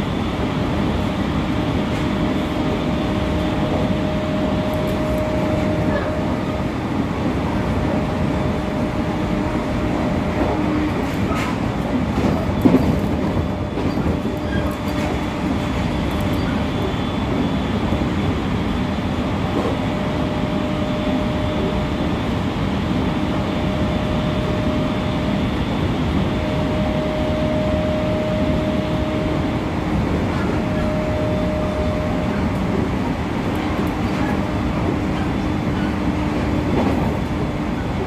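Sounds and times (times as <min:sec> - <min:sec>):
wheel-on-rail rumble: 0:00.0 - 0:18.4, 0:26.1 - 0:38.0.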